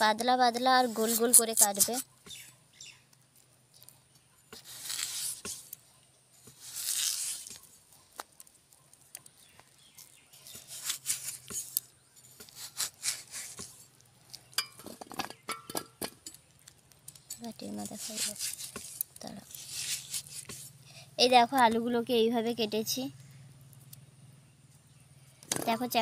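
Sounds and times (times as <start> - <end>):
blade slicing potato: 12.4 - 13.8, 17.7 - 20.7.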